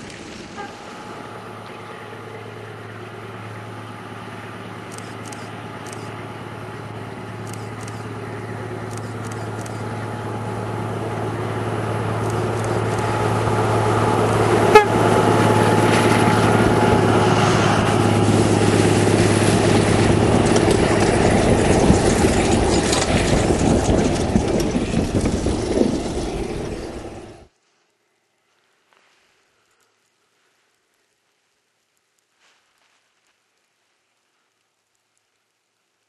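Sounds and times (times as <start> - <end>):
diesel train engine hum: 0.0 - 27.5
train wheels clattering and clicking: 20.3 - 27.2.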